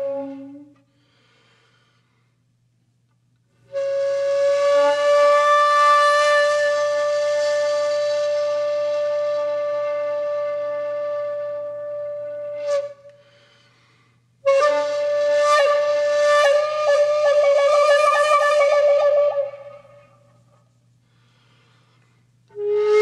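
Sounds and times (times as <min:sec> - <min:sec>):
solo flute playing: 0:00.0 - 0:01.2, 0:03.6 - 0:13.6, 0:14.4 - 0:20.4, 0:22.5 - 0:23.0.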